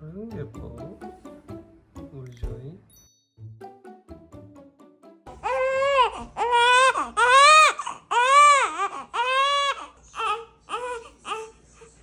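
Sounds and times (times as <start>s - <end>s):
newborn baby crying: 5.3s - 11.8s.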